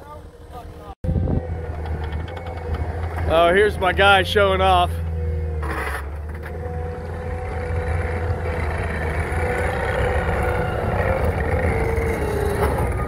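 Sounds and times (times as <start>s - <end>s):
diesel engine under load: 0.2s - 13.0s
bucket scraping dirt: 1.8s - 10.2s.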